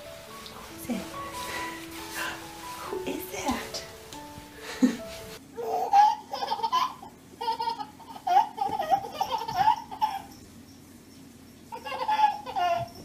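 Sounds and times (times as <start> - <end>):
baby laughing: 4.8 - 10.3, 11.7 - 12.9.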